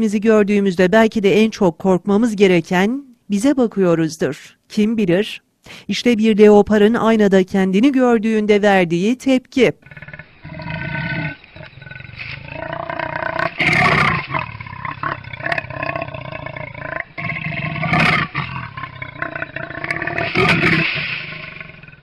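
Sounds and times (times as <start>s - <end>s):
leopard growling: 9.8s - 22.0s.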